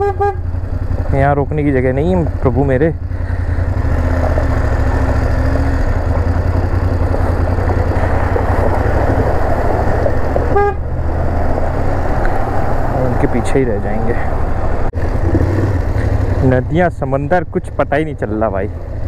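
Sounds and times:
horn toot: 0.0s - 0.6s, 10.4s - 10.9s
motorcycle engine running: 0.0s - 19.0s.

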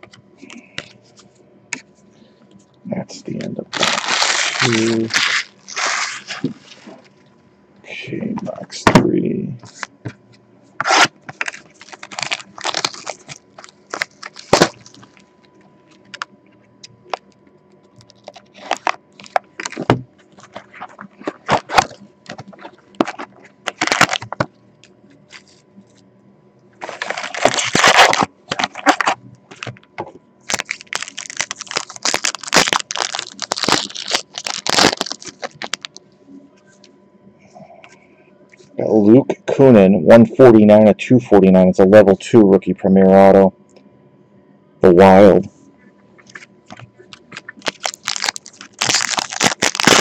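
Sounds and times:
cardboard packaging tearing: 3.7s - 7.0s, 10.8s - 15.2s, 18.2s - 24.4s, 26.8s - 29.7s, 30.5s - 35.9s, 47.4s - 50.0s
plastic shrink wrap crackling: 3.7s - 7.1s, 10.9s - 15.3s, 18.0s - 24.5s, 26.8s - 29.8s, 30.5s - 36.0s, 47.1s - 50.0s.

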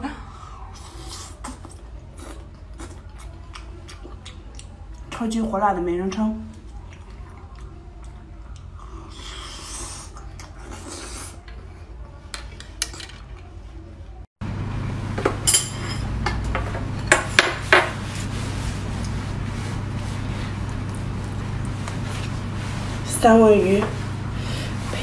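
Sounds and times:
low hum: 17.9s - 25.0s.

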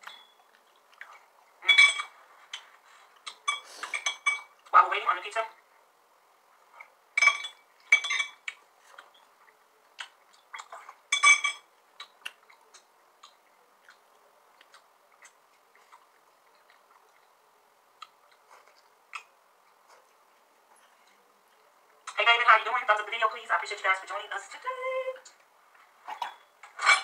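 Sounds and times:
chewing: 0.0s - 4.8s, 6.6s - 11.1s, 11.8s - 22.2s.

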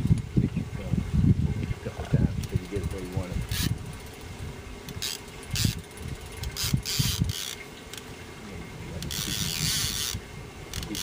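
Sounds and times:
fishing reel whirring and clicking: 2.4s - 8.1s, 9.0s - 11.0s.

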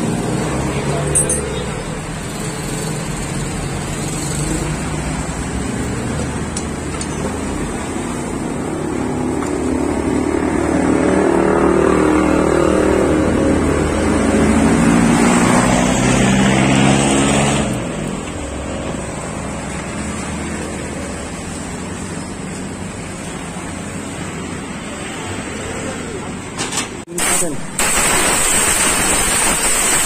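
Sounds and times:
motorcycle engine revving: 9.0s - 17.9s.

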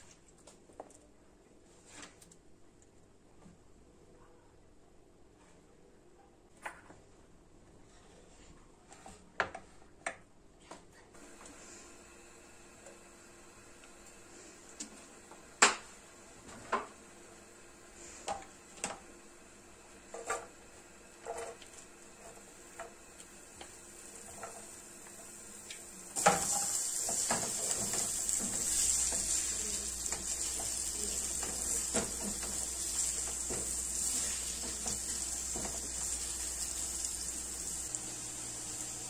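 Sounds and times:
onion sizzling in hot oil: 15.0s - 39.0s.

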